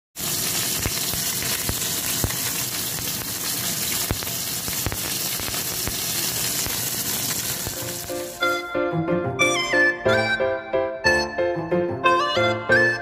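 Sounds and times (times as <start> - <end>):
fish sizzling in hot oil: 0.2 - 8.6.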